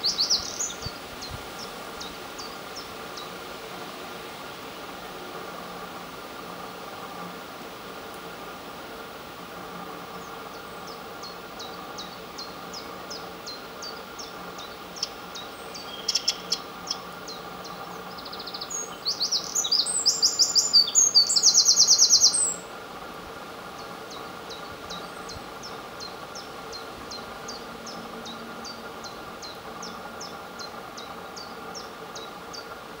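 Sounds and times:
wren singing with fast trill: 0:00.0 - 0:03.4, 0:10.2 - 0:22.7.

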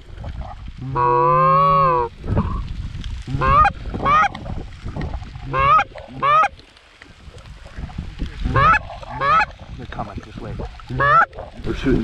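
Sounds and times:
goose call honking: 0:00.8 - 0:02.1, 0:03.3 - 0:04.4, 0:05.4 - 0:06.6, 0:08.4 - 0:09.6, 0:10.9 - 0:11.6.

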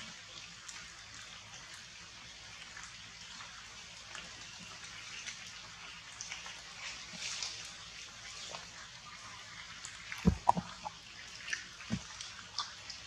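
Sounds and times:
drips ticking: 0:09.8 - 0:13.0.

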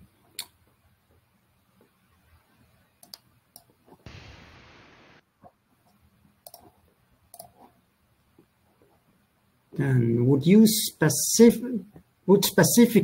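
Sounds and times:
faint clicks: 0:03.0 - 0:04.4, 0:05.9 - 0:06.7, 0:07.3 - 0:07.6
burst of hiss: 0:04.1 - 0:05.2.

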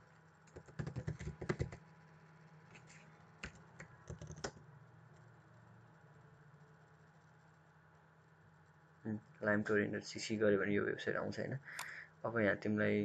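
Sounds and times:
faint steady hum: 0:00.0 - 0:13.0
keyboard keys clicking: 0:00.5 - 0:01.8, 0:03.4 - 0:04.6.

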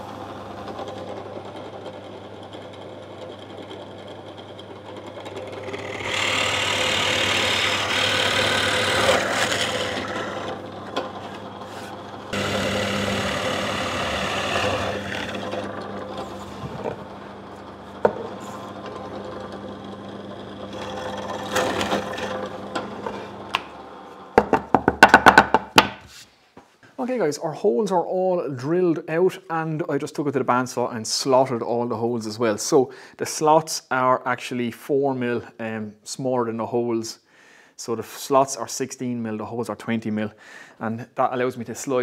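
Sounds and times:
drill bit boring through wood: 0:00.0 - 0:24.8
drill press motor hum: 0:00.0 - 0:25.1.

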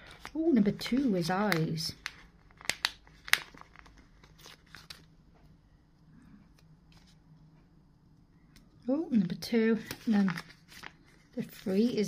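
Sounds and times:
faint paper handling: 0:00.0 - 0:05.5, 0:09.7 - 0:12.0.

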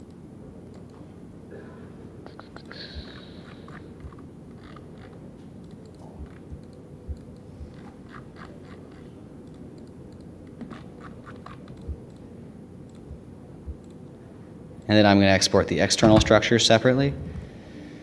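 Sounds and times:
computer mouse clicks: 0:00.0 - 0:01.0, 0:02.3 - 0:12.3, 0:12.9 - 0:14.0
steady low hum: 0:00.0 - 0:18.0.

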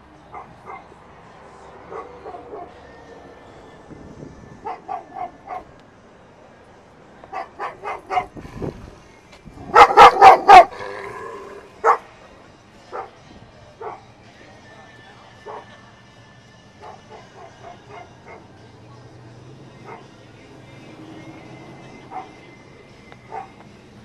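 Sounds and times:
dog barking: 0:00.3 - 0:00.9, 0:01.9 - 0:02.8, 0:04.6 - 0:05.7, 0:07.3 - 0:08.4, 0:09.7 - 0:10.8, 0:11.8 - 0:12.0, 0:12.9 - 0:13.1, 0:13.8 - 0:14.1, 0:15.5 - 0:15.7, 0:16.8 - 0:18.5, 0:19.8 - 0:20.1, 0:22.1 - 0:22.4, 0:23.3 - 0:23.6.

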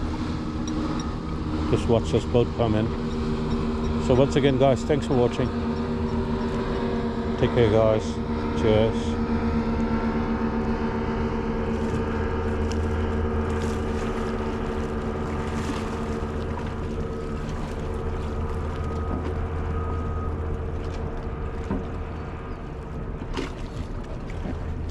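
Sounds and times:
motorboat engine running: 0:00.0 - 0:24.9
lapping water: 0:11.7 - 0:22.3, 0:23.1 - 0:24.9.

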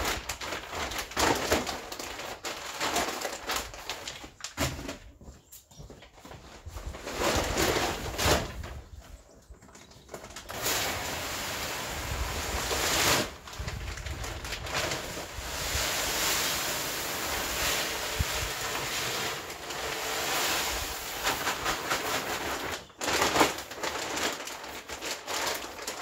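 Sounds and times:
plastic sack crinkling: 0:00.0 - 0:05.0, 0:06.6 - 0:26.0
feed pellets pouring into bin: 0:10.5 - 0:26.0.

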